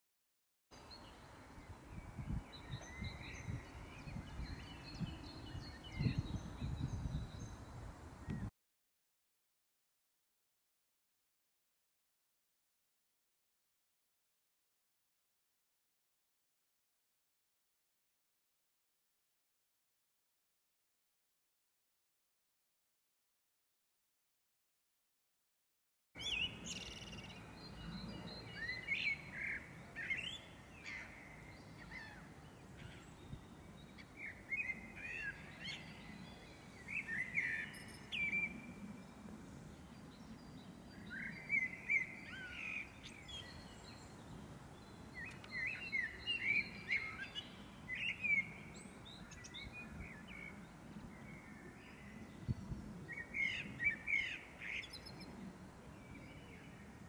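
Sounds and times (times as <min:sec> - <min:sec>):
songbird singing: 0:00.8 - 0:08.5, 0:26.2 - 0:57.0.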